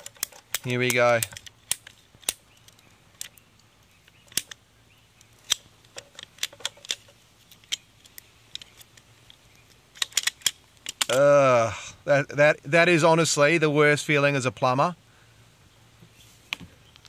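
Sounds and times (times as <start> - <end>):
cutters crunching through hose: 0.0 - 3.4.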